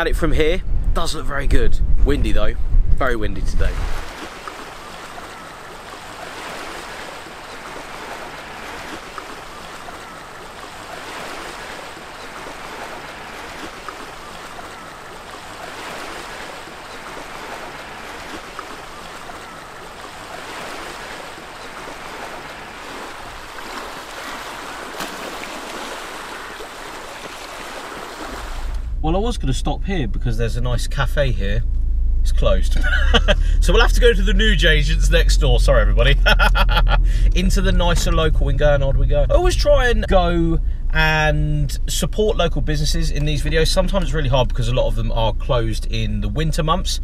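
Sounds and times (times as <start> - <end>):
waves washing onto shingle: 3.6 - 28.8.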